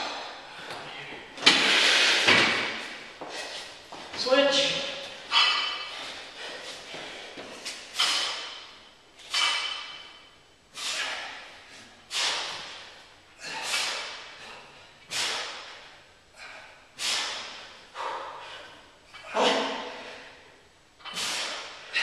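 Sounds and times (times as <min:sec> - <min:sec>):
men exhaling forcefully: 0:01.4 - 0:03.6, 0:07.9 - 0:08.7, 0:10.7 - 0:20.5, 0:21.1 - 0:22.0
man grunting: 0:19.2 - 0:20.1.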